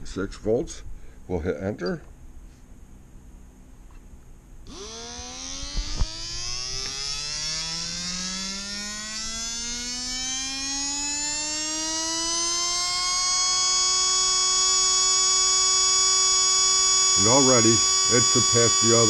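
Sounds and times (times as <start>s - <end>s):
electric motor whine: 4.6s - 19.0s.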